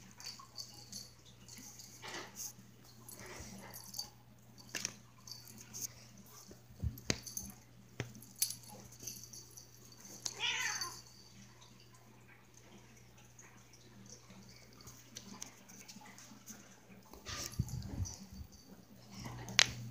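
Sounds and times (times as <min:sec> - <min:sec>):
kitten meow: 0:10.4 - 0:10.9.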